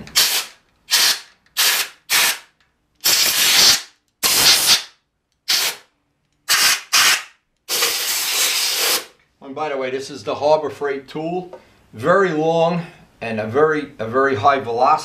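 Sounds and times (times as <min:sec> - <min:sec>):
compressed air blow gun hissing: 0:00.1 - 0:02.4, 0:06.5 - 0:09.1.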